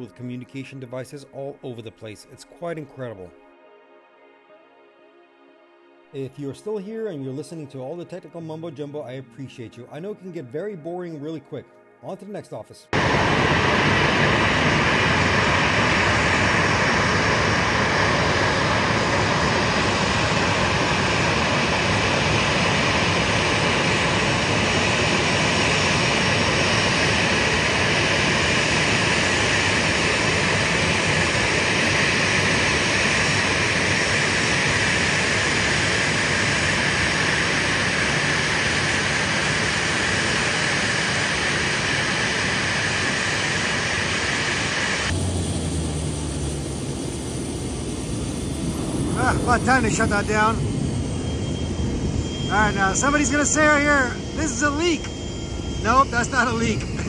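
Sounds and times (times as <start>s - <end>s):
jet engines idling: 13.0s - 57.0s.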